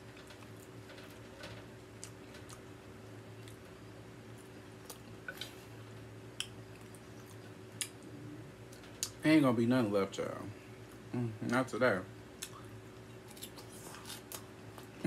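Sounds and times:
faint steady hum: 0:00.0 - 0:15.0
quiet chewing: 0:00.1 - 0:09.2.

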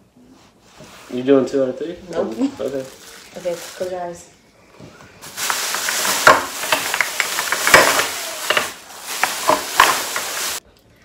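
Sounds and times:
plastic bags rustling: 0:01.0 - 0:04.3, 0:05.2 - 0:10.6.

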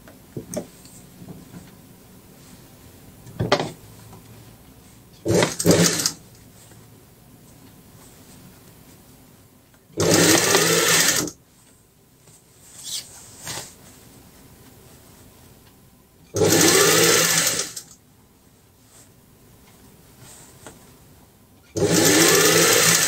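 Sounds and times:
sewing machine stitching: 0:05.2 - 0:06.2, 0:10.0 - 0:11.4, 0:16.4 - 0:17.9, 0:21.7 - 0:23.0
faint rustles: 0:11.5 - 0:15.6.

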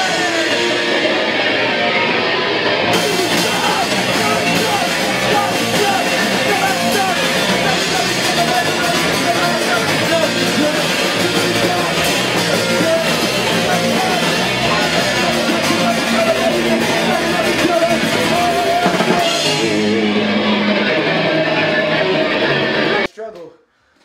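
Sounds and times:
drum kit: 0:00.0 - 0:23.1
distorted electric guitar: 0:00.0 - 0:23.2
person singing into a microphone: 0:03.0 - 0:20.9.

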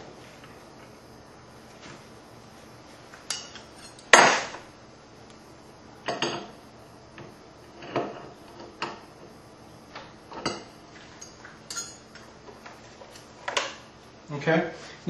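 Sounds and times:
metal tools clinking: 0:03.3 - 0:04.1, 0:11.1 - 0:12.0.

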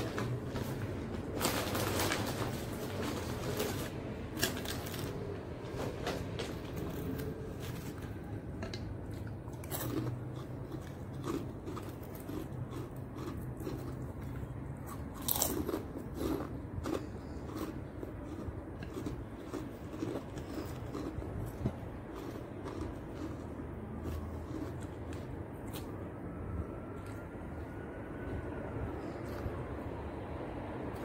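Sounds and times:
low hum: 0:00.0 - 0:31.0
person chewing crunchy food: 0:05.8 - 0:29.9.

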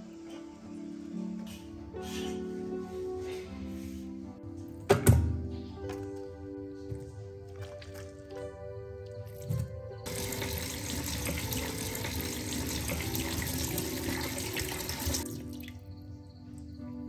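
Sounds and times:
tap water splashing into a bowl: 0:10.1 - 0:15.8.

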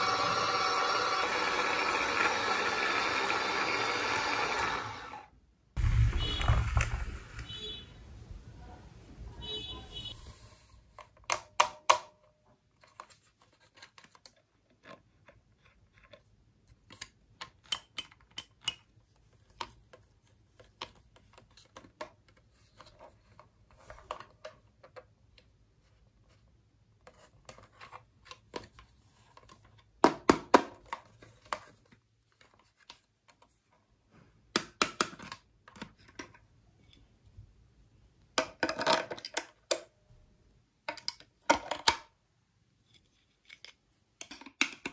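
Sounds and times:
plastic toy clicks and knocks: 0:11.0 - 0:12.2, 0:16.8 - 0:19.8, 0:34.5 - 0:36.4, 0:38.4 - 0:39.9, 0:40.9 - 0:42.1, 0:43.5 - 0:44.9.

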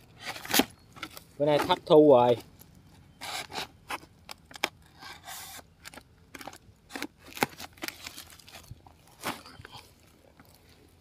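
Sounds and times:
plastic sack rustling: 0:06.4 - 0:10.6.

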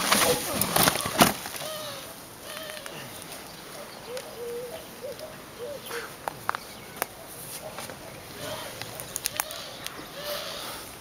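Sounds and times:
dove cooing: 0:00.8 - 0:03.1, 0:04.0 - 0:06.2, 0:08.1 - 0:10.8.

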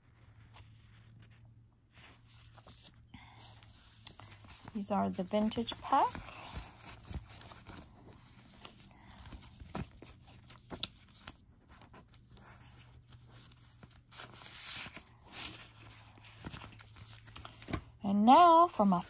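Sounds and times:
sticker sheets rustling: 0:03.8 - 0:19.0.

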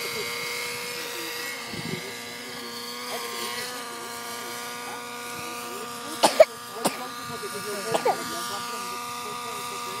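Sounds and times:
model helicopter engine buzzing: 0:00.0 - 0:10.0.

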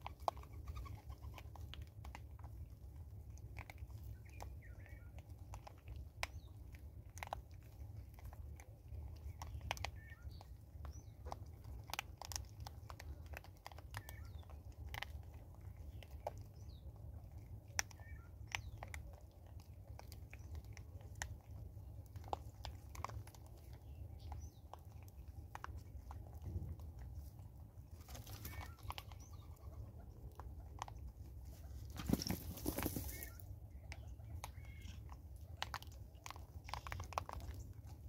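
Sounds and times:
monkeys crunching seeds: 0:00.0 - 0:38.0
faint bird chirps: 0:04.0 - 0:05.2, 0:09.4 - 0:11.2, 0:14.0 - 0:14.5, 0:17.9 - 0:18.8, 0:28.0 - 0:29.8, 0:32.0 - 0:35.0.

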